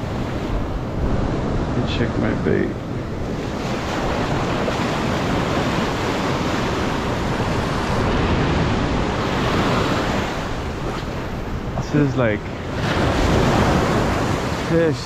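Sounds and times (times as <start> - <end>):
ocean surf breaking: 0.0 - 15.0.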